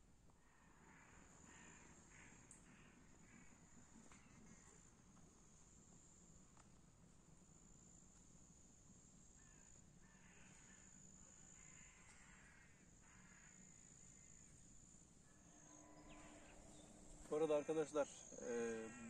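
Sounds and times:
distant crows cawing: 0.4 - 4.8, 9.4 - 19.0
insect trill: 7.4 - 19.0.

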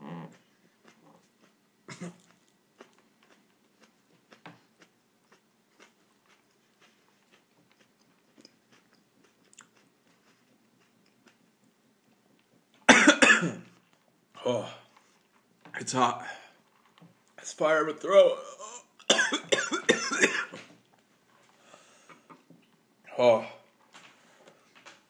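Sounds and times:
chili pepper being bitten and chewed: 0.2 - 12.5.

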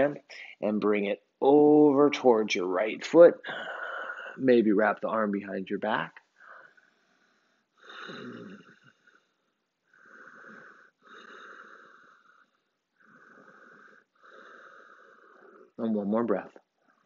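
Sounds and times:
person breathing deeply: 3.4 - 4.4, 6.4 - 15.8.

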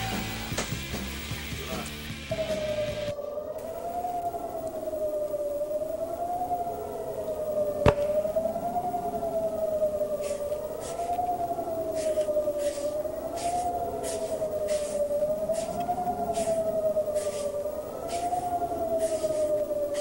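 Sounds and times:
wavering siren-like tone: 1.7 - 20.0
faint hissing bursts: 6.6 - 20.0.

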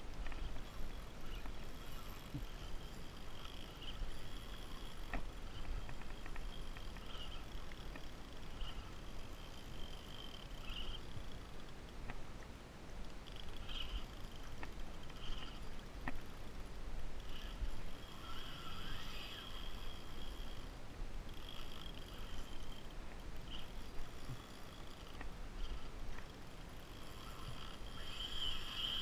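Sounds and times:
short high squeaks: 0.3 - 11.4, 15.0 - 15.8, 17.3 - 20.7, 26.9 - 29.0.

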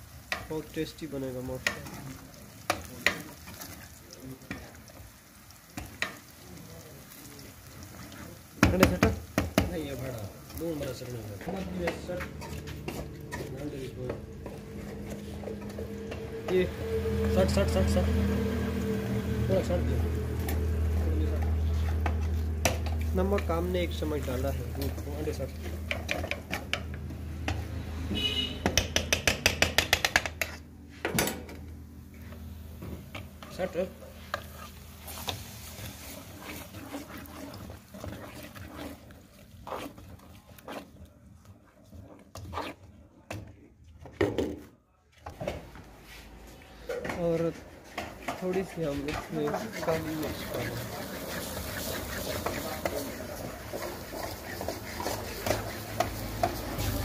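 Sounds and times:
onions sizzling: 0.0 - 28.1, 32.0 - 40.0, 47.4 - 57.0
metal ladle scraping a steel pan: 10.8 - 27.6, 33.1 - 40.9, 47.0 - 57.0
steady low hum: 11.6 - 23.1.

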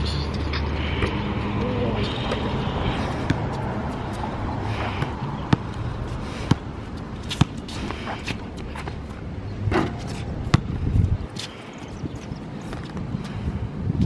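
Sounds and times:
basketball bouncing on court: 3.2 - 3.6, 5.0 - 5.8, 10.4 - 10.8.

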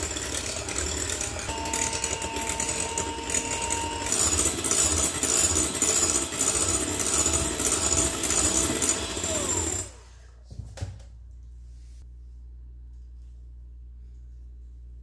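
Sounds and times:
electric hand mixer motor: 0.0 - 10.2.

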